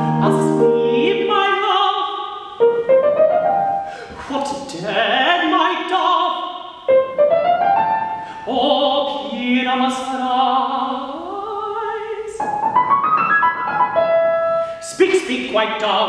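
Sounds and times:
operatic tenor singing: 0.0s - 2.4s, 4.2s - 7.1s, 8.4s - 12.6s, 14.8s - 16.0s
grand piano accompaniment: 0.0s - 11.4s, 12.0s - 16.0s.

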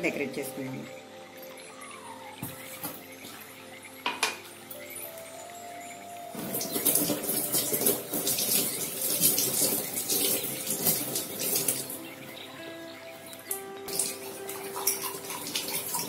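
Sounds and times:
tap water splashing into sink: 6.4s - 12.0s.

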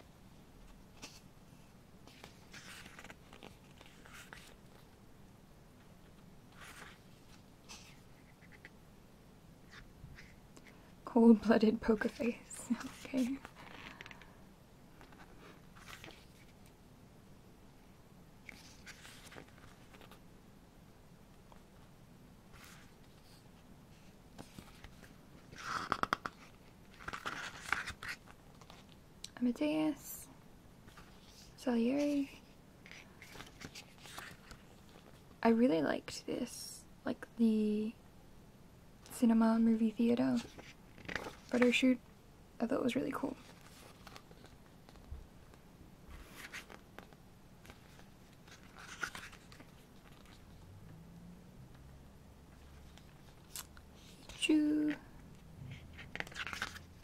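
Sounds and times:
pages rustling with snaps: 2.0s - 5.0s, 6.0s - 8.8s, 15.0s - 16.8s, 18.4s - 20.2s, 24.3s - 29.0s, 32.8s - 35.4s, 40.4s - 41.8s, 43.4s - 50.6s, 52.6s - 57.0s.

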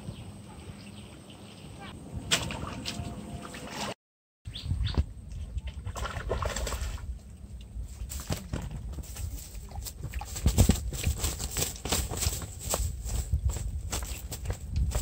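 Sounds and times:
wind on microphone: 0.0s - 5.9s, 7.8s - 15.0s
fish flopping on dry grass: 7.9s - 15.0s.

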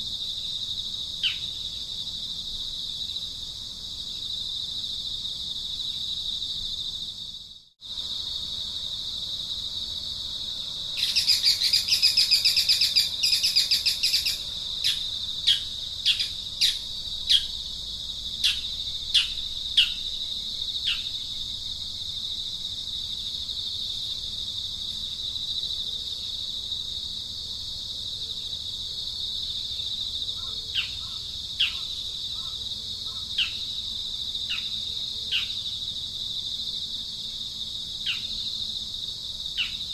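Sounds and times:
insects droning: 0.0s - 39.9s
bird trilling and chirping: 11.0s - 17.5s.

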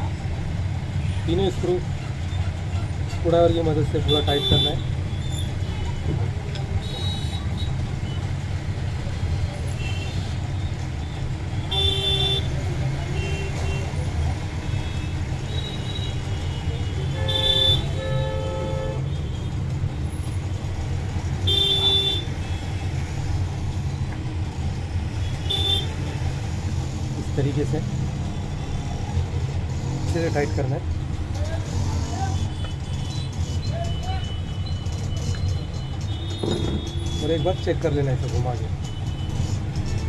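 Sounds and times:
road traffic rumble: 0.0s - 40.0s
vehicle horn toots: 17.0s - 19.1s, 21.4s - 22.6s.

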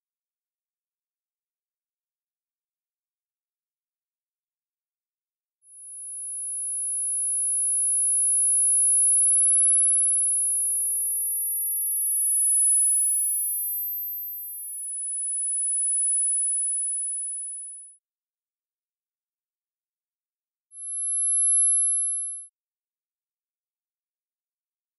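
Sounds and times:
high-pitched sine tones: 7.2s - 17.5s.

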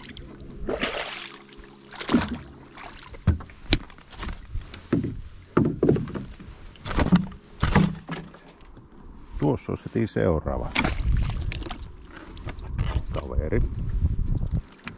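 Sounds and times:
oar splashing in water: 0.0s - 8.4s, 10.7s - 13.0s
oar knocking against boat: 3.2s - 3.9s, 4.9s - 6.4s.

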